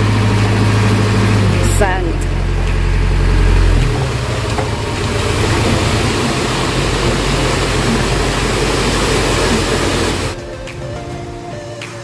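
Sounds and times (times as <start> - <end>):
truck engine humming: 0.0 - 12.0
sand pouring hiss: 5.0 - 10.4.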